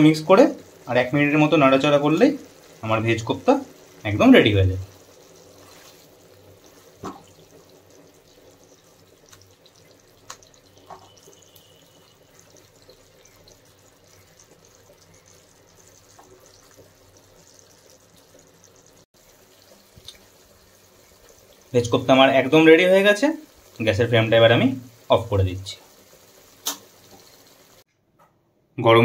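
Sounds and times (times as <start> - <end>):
wet stirring of gravy in pan: 4.9 - 21.7.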